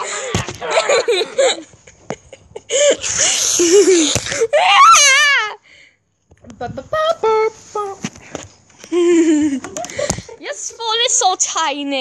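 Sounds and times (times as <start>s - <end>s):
children laughing and shrieking: 3.0s - 5.6s.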